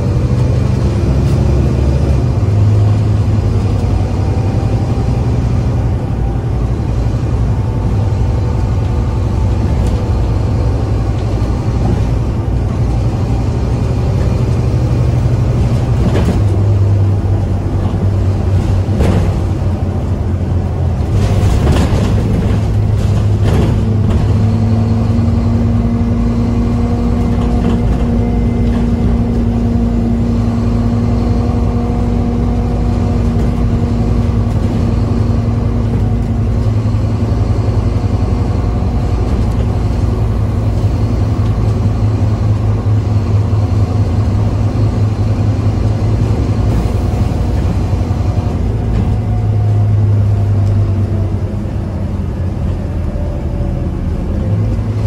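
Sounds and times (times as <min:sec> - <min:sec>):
bus engine low hum: 0:00.0 - 0:55.0
drivetrain whine: 0:00.0 - 0:55.0.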